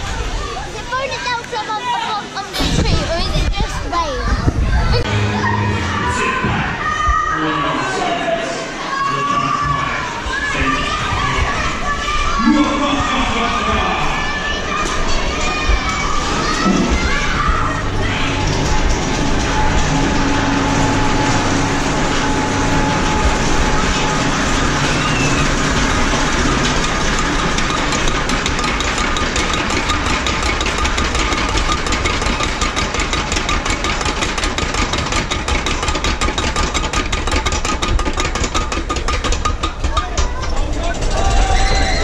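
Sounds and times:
roller coaster rumbling and rattling: 0.0 - 42.0
rapid clicking clatter: 14.7 - 42.0.

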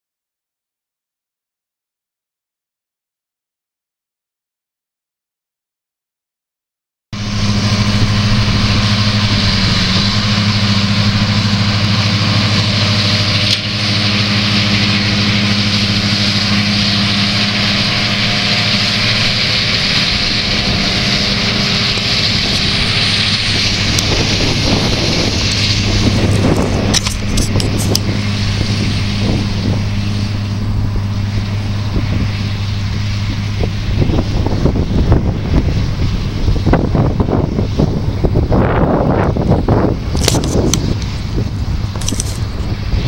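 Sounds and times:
loud hiss: 7.2 - 36.8
tractor engine under load: 7.2 - 43.0.

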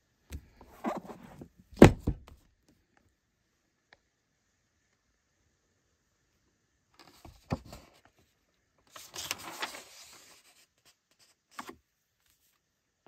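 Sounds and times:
soft thump: 1.8 - 2.3
pages turning and rustling: 8.9 - 12.5.

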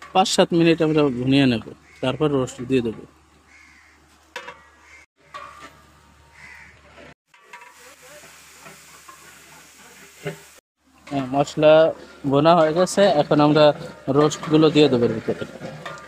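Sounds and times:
crows cawing: 1.7 - 2.5, 3.4 - 5.5, 6.3 - 7.0
metal ladle stirring pot: 7.3 - 7.9, 11.0 - 16.0
spices sizzling in oil: 7.3 - 16.0.

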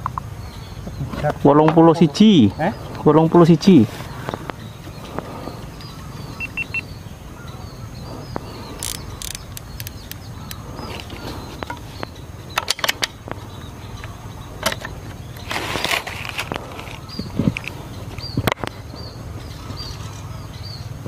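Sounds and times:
small birds chirping: 0.0 - 21.0
steady low rumble: 2.0 - 21.0
air rifle handling clicks: 8.4 - 11.9.

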